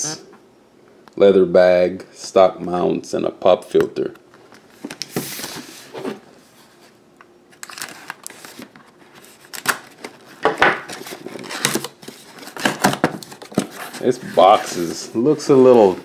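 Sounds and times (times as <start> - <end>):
cardboard box rustling and scraping: 11.0 - 16.0.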